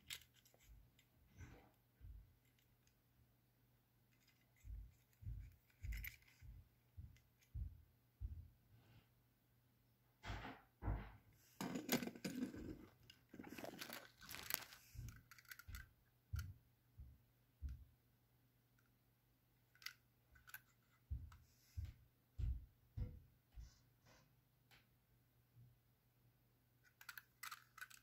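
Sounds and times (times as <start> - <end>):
rustling and crinkling: 0.0 - 1.8, 4.1 - 6.6, 11.4 - 15.9
model wagons clicking on wooden floor: 4.2 - 7.2.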